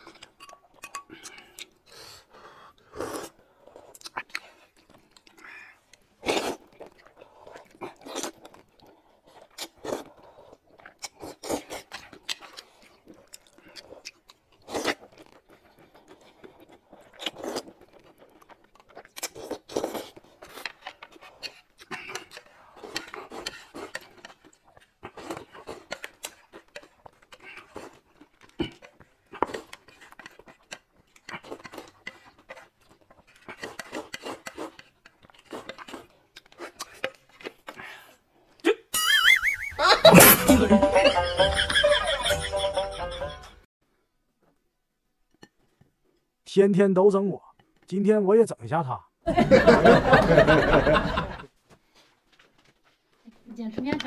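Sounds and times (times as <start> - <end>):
chewing: 0.0 - 38.7
noodle slurping: 1.1 - 38.2.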